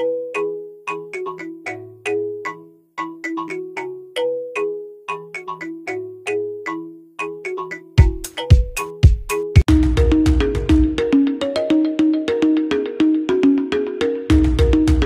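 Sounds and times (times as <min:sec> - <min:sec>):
electronic ringtone-like melody: 0:00.0 - 0:15.0
deep bass hits: 0:09.7 - 0:11.0.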